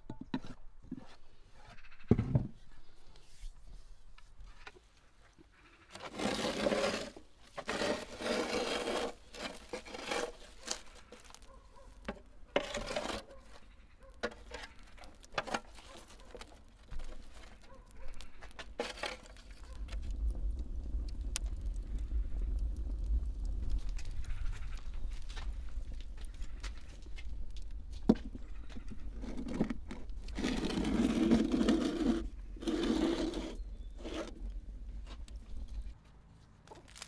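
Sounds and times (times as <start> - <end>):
metal shovel scraping embers: 5.9 - 20.1, 28.4 - 35.8
wood fire rumbling: 6.1 - 13.8, 14.4 - 36.0
fire crackle: 6.6 - 36.0, 36.7 - 37.0.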